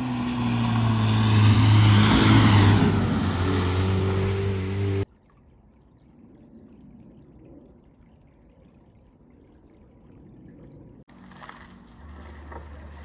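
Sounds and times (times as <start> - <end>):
faint trickling water: 5.0 - 11.1.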